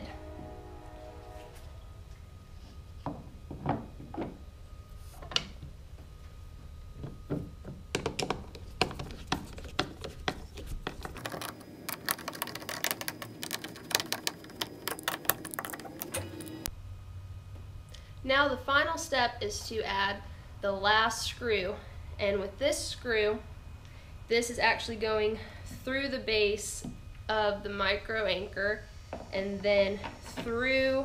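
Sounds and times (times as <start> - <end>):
plastic parts knocking: 7.0 - 16.6.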